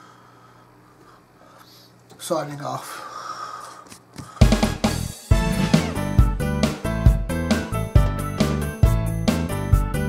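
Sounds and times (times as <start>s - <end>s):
background music with steady beat: 4.4s - 10.0s.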